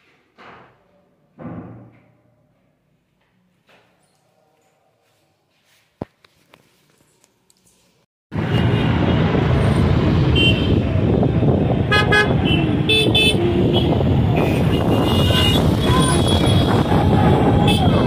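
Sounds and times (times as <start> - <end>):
busy road traffic: 6.0 - 18.0
car horns honking: 11.9 - 16.8.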